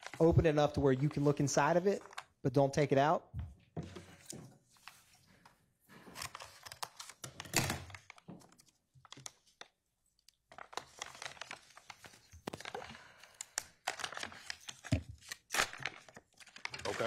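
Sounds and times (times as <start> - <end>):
packaging rustling and crinkling: 6.0 - 9.8, 10.4 - 17.0.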